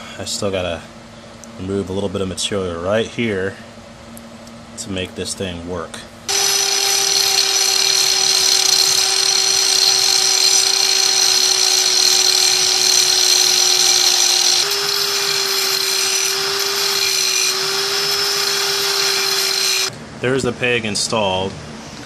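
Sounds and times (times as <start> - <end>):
angle grinder grinding metal: 6.3 - 19.9.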